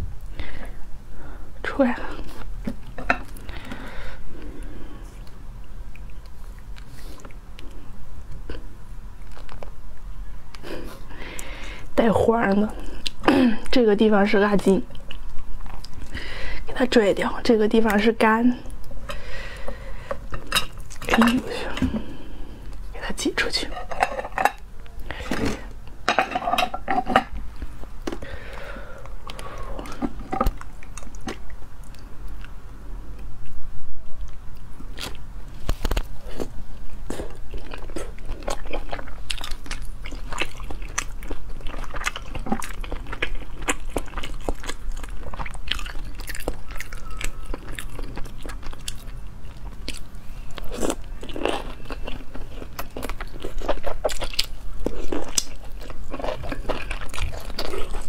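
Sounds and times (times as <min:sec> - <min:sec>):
biting and chewing: 0:04.4 - 0:09.8, 0:34.2 - 0:58.0.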